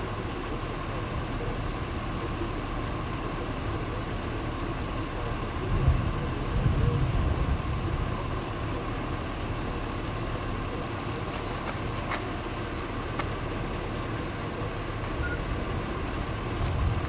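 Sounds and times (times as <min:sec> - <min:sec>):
wind buffeting microphone: 0:05.6 - 0:08.3, 0:15.6 - 0:17.0.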